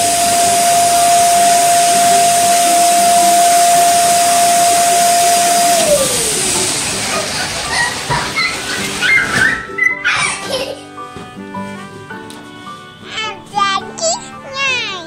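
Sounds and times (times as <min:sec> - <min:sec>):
rushing air: 0:00.0 - 0:07.6
electric balloon blower whining: 0:00.0 - 0:09.4.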